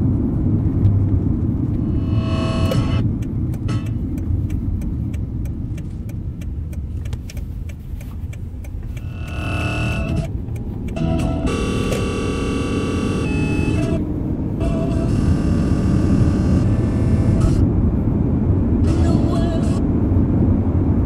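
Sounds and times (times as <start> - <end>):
low rumbling radio static: 1.5 - 5.4, 8.2 - 20.1
buzz with overtones: 1.8 - 3.0, 9.0 - 10.3, 11.0 - 14.0, 14.6 - 17.6
warbling radio tone: 2.0 - 3.0.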